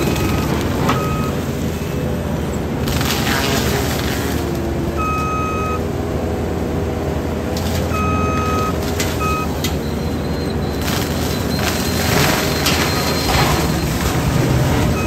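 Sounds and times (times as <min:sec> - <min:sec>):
diesel engine under load: 0:00.0 - 0:15.0
mulcher grinding brush: 0:02.6 - 0:04.7, 0:10.7 - 0:15.0
wood cracking while shredded: 0:02.8 - 0:04.8, 0:10.8 - 0:14.9
high electronic warning beeps: 0:08.0 - 0:14.1.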